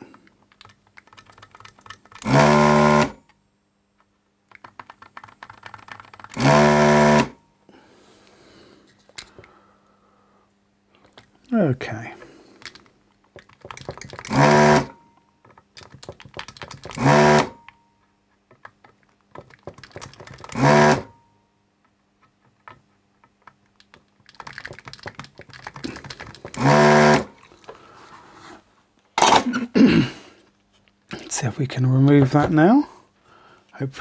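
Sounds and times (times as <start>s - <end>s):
vacuum pump buzzing: 2.2s - 3.3s, 6.3s - 7.4s, 14.0s - 15.1s, 16.8s - 17.7s, 20.3s - 21.2s, 25.8s - 28.0s.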